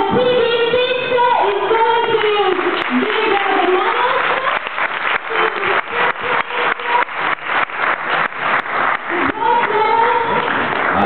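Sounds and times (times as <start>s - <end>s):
crowd clapping in unison: 1.4s - 11.0s.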